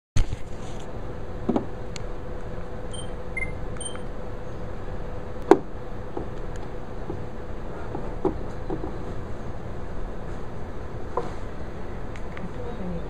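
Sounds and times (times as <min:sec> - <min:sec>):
faint constant hum: 0:00.2 - 0:13.0
faint high beeps: 0:02.9 - 0:04.1.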